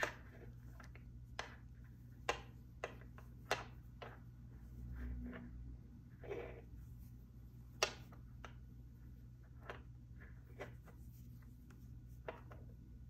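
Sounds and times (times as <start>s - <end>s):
knitting needles clicking: 0.0s - 4.6s
low steady hum: 0.0s - 13.0s.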